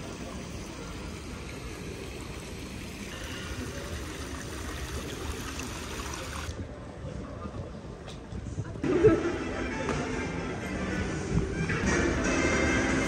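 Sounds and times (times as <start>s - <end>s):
fountain water rushing: 0.0s - 6.6s
quiet outdoor ambience: 0.0s - 8.9s
wind rumble on microphone: 6.6s - 8.9s.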